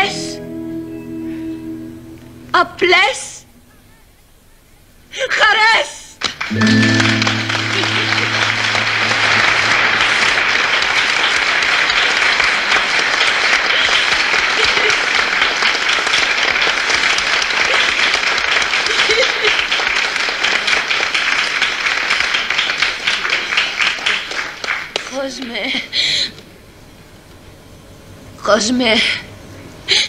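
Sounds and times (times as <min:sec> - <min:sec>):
audience applause: 0:06.2 - 0:25.3.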